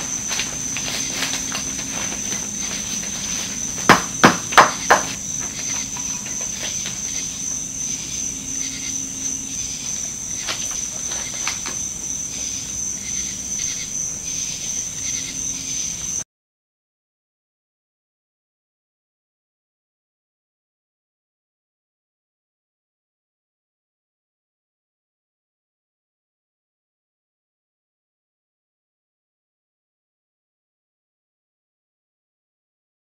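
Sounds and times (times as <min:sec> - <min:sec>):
chunks knocking off: 0:00.0 - 0:07.2
steady high-pitched whine: 0:00.0 - 0:16.2.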